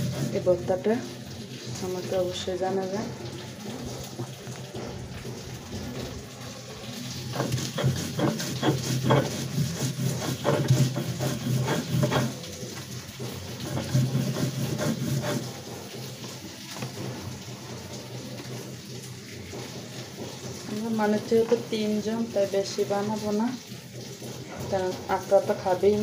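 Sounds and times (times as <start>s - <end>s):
stone scraping on stone: 0.0s - 0.5s, 7.3s - 12.7s, 13.6s - 15.8s.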